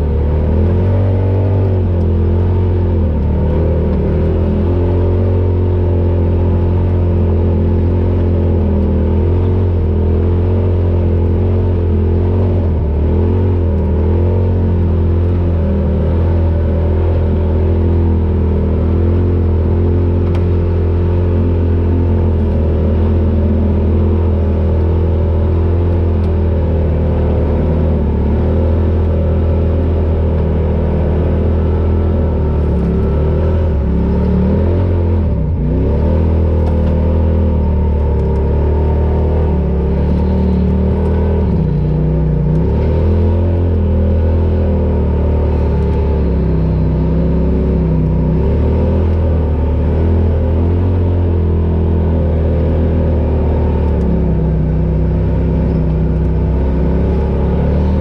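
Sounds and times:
off-road vehicle engine running: 0.0 - 58.0.

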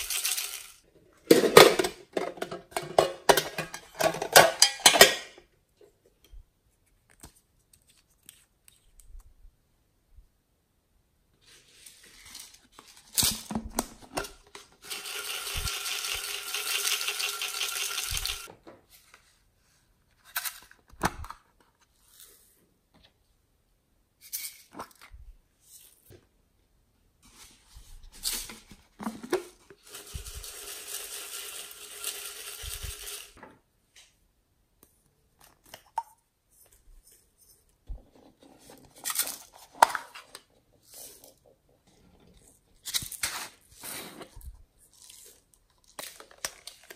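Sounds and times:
glitter rattling in plastic containers: 0.0 - 0.8, 14.1 - 18.5, 29.1 - 33.4.

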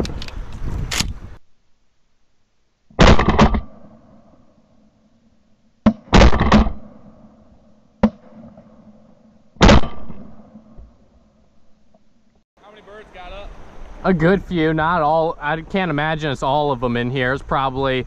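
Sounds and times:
shotgun shots: 3.0 - 4.0, 5.8 - 7.3, 8.0 - 8.7, 9.6 - 10.6.

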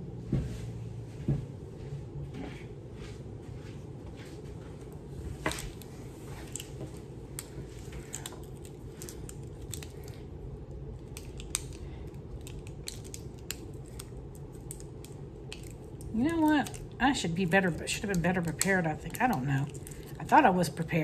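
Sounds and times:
steady low hum: 0.0 - 21.0
small objects clicking: 11.0 - 16.9.

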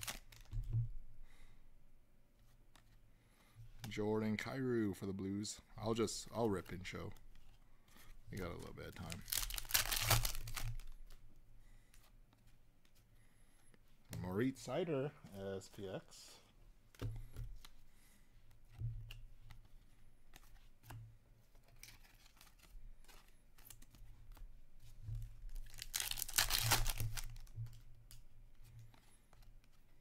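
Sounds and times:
card pack wrapper tearing: 0.0 - 0.5, 8.9 - 11.0, 25.6 - 27.5
cards clicking and rustling: 0.0 - 0.7, 5.8 - 11.2, 18.7 - 24.5, 25.3 - 30.0.

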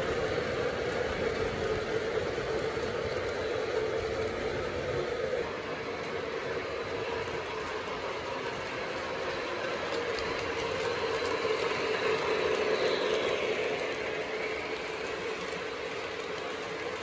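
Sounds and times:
model train rolling rumble: 0.0 - 17.0.

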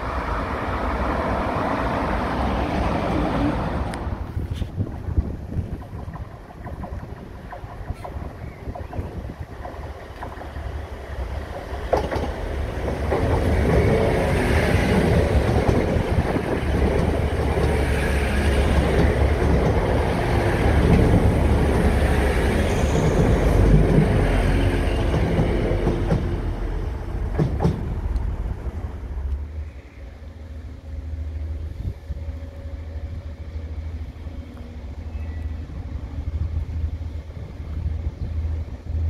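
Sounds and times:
train passing on rails: 0.0 - 39.0
sharp click from train wheels: 5.5 - 10.8, 11.4 - 14.1, 14.8 - 21.3, 22.4 - 26.4, 27.2 - 28.3.

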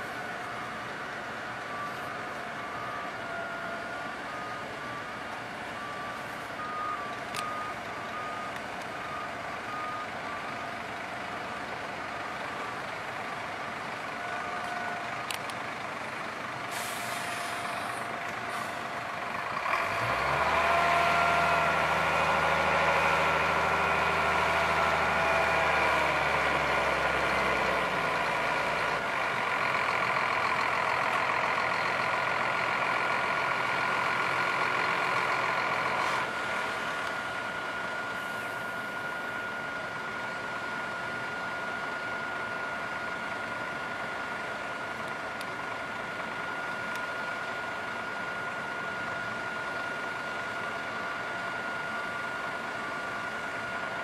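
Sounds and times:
truck reversing beeper: 0.0 - 54.0
air hiss: 16.7 - 18.0
truck engine revving: 19.5 - 38.0.

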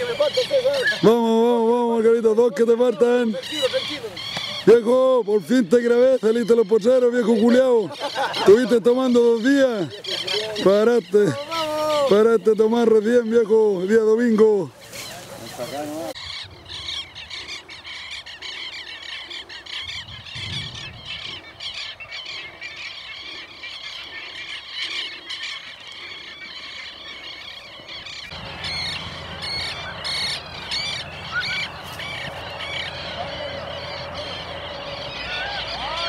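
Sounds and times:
greyhounds squealing and yelping: 0.0 - 1.1, 28.0 - 36.0.

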